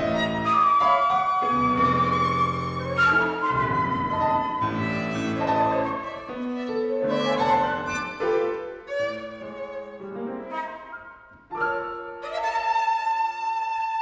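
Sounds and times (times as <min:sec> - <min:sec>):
flute: 0:00.0 - 0:14.0
grand piano: 0:00.0 - 0:14.0
violin: 0:00.0 - 0:14.0.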